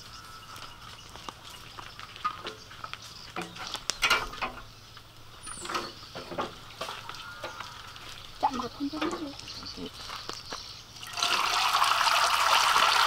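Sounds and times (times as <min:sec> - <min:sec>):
oil pouring into a wok: 0:11.0 - 0:13.0.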